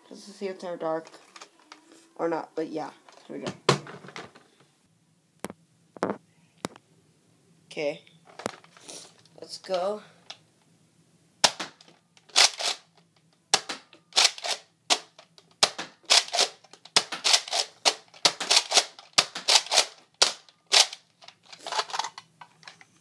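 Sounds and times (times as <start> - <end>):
toy blaster priming and firing: 12.3 - 12.9, 13.6 - 15.0, 15.6 - 21.1.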